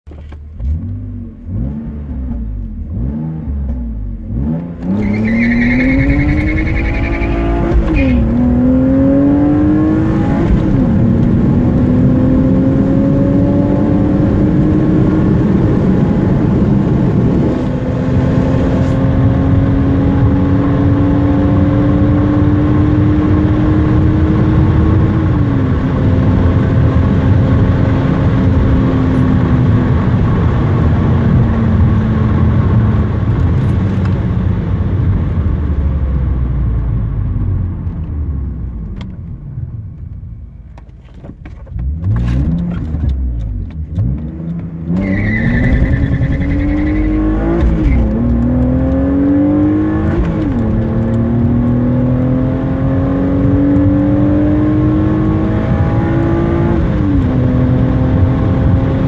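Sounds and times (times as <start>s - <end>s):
car engine revving: 0.5s - 39.2s, 41.6s - 59.0s
car accelerating through gears: 0.6s - 34.2s, 41.8s - 59.0s.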